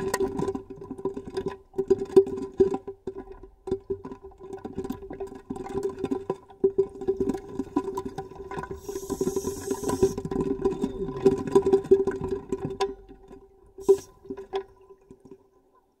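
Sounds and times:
underwater bubbling and gurgling: 0:00.0 - 0:15.8
brief hiss: 0:08.8 - 0:10.3, 0:13.8 - 0:14.2.

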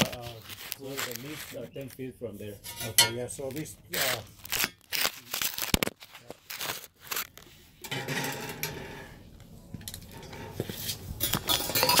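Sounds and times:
rubbing and small clinks: 0:09.9 - 0:12.0.

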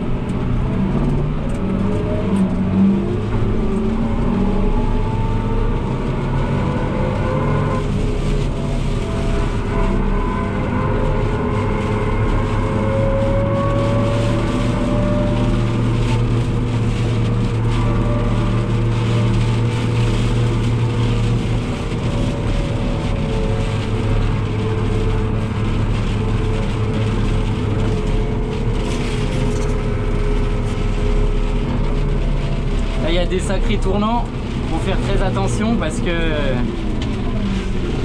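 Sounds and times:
tractor diesel engine running: 0:07.8 - 0:38.0.

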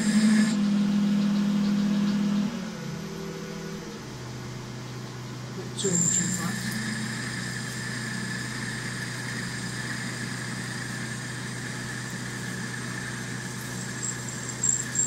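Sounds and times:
high-pitched cutting squeal: 0:00.0 - 0:03.8, 0:05.6 - 0:15.0
metal lathe humming: 0:00.0 - 0:15.0.

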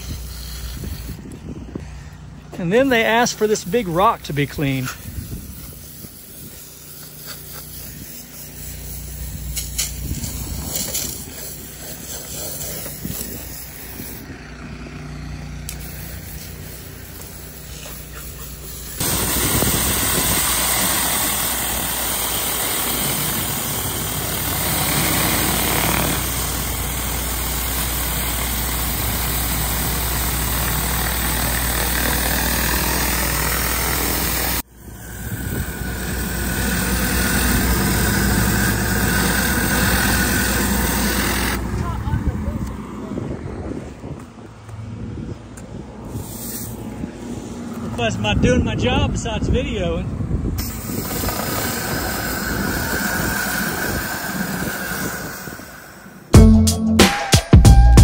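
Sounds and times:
surface cleaner scrubbing concrete: 0:00.0 - 0:01.4, 0:02.5 - 0:14.4, 0:15.4 - 0:43.3, 0:46.0 - 0:49.0, 0:50.6 - 0:56.3
pressure washer engine running: 0:00.0 - 0:43.3, 0:50.6 - 0:56.4
water spray hissing on rock: 0:05.0 - 0:13.4.

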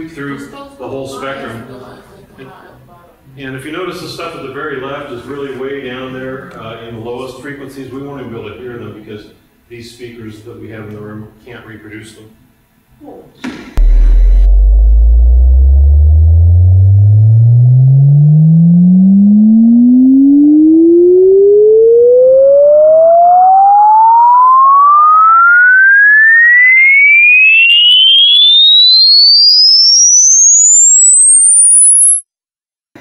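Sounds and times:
rising sine-wave tone: 0:13.8 - 0:32.2.

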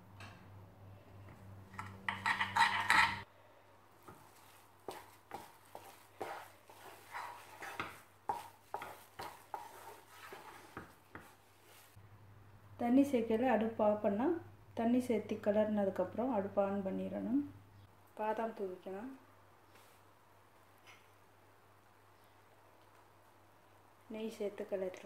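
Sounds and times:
wooden spatula scraping pan: 0:01.8 - 0:03.3, 0:04.0 - 0:12.0.

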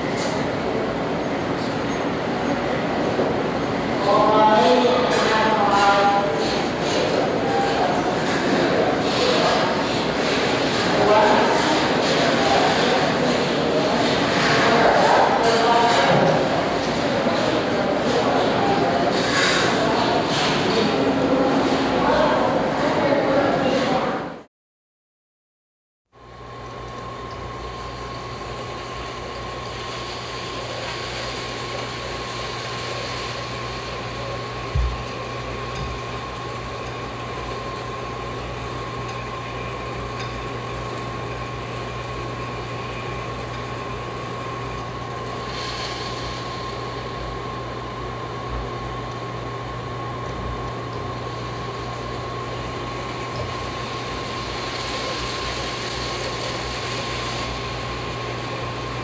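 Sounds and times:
machine hum and hiss: 0:00.0 - 0:24.5, 0:26.2 - 0:59.0
brief thump: 0:34.8 - 0:35.0.

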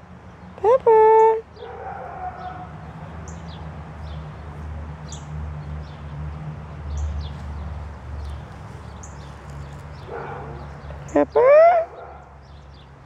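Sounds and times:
dog whining: 0:10.4 - 0:12.0.

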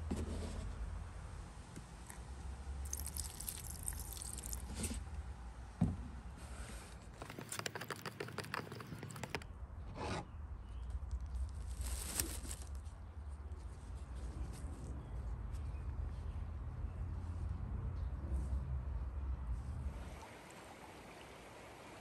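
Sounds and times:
liquid pouring into plastic cup: 0:02.9 - 0:04.8
handling scrapes: 0:06.4 - 0:10.4
stir stick scraping plastic cup: 0:07.1 - 0:10.4.

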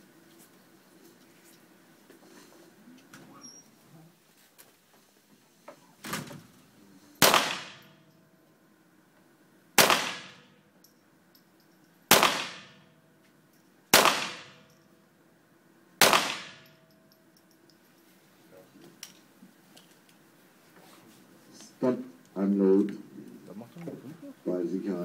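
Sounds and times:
pistol shots: 0:07.2 - 0:08.1, 0:09.8 - 0:10.6, 0:12.1 - 0:12.9, 0:13.9 - 0:14.7, 0:16.0 - 0:16.8.

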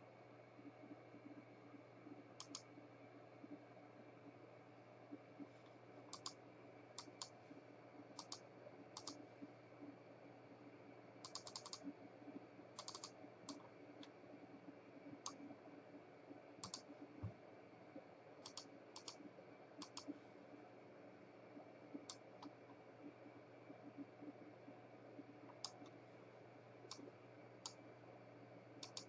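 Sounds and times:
faint steady hum: 0:00.0 - 0:29.0
computer mouse clicks: 0:02.4 - 0:02.7, 0:06.1 - 0:06.4, 0:07.0 - 0:07.4, 0:08.2 - 0:08.4, 0:09.0 - 0:09.2, 0:11.2 - 0:12.0, 0:12.8 - 0:14.2, 0:15.2 - 0:15.4, 0:16.6 - 0:17.0, 0:18.4 - 0:19.2, 0:19.8 - 0:20.2, 0:21.9 - 0:22.8, 0:25.5 - 0:26.0, 0:26.9 - 0:27.8, 0:28.8 - 0:29.0.

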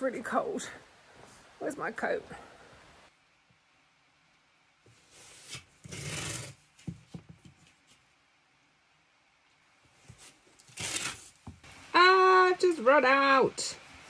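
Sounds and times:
tape peeling off roll: 0:05.1 - 0:06.8, 0:10.2 - 0:11.6.

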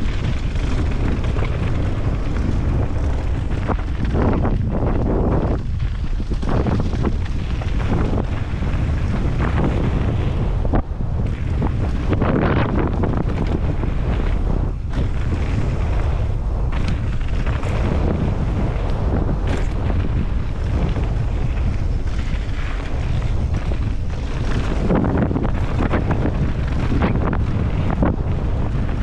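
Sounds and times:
bike tyres rumbling: 0:00.0 - 0:29.0
wind rushing over microphone: 0:00.0 - 0:29.0
bike knocks and rattles: 0:11.2 - 0:29.0.

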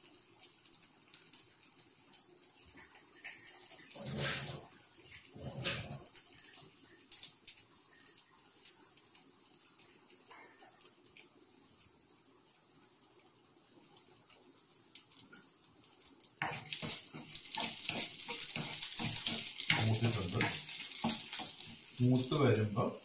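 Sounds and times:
vegetables sizzling in oil: 0:00.0 - 0:23.0
spatula scraping a pan: 0:03.8 - 0:04.7, 0:05.3 - 0:06.1, 0:16.4 - 0:22.0.

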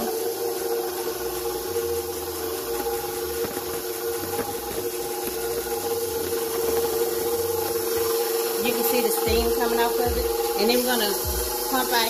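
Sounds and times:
stand mixer motor whine: 0:00.0 - 0:12.0
whisk knocking on bowl: 0:02.6 - 0:12.0.

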